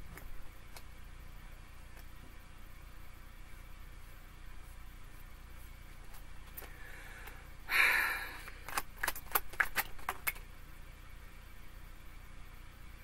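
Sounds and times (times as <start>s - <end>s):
cards being shuffled: 8.4s - 10.4s.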